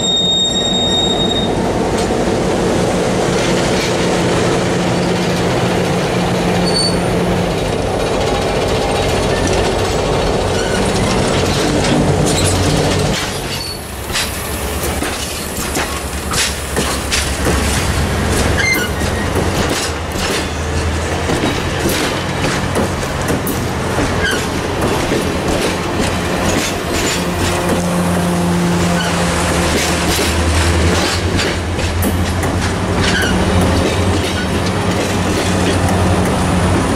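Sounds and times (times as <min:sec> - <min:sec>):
wheel squeals: 0:00.0 - 0:01.6, 0:06.6 - 0:07.1, 0:10.5 - 0:11.2, 0:12.3 - 0:13.9, 0:18.5 - 0:19.4
train wheels rumbling on rails: 0:00.0 - 0:36.9.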